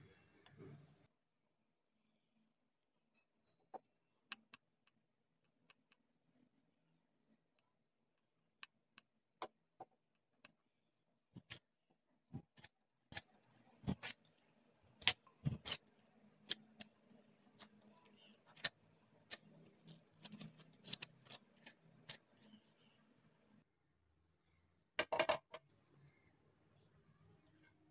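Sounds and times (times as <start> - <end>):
hands kneading dough: 11.3 - 23.5.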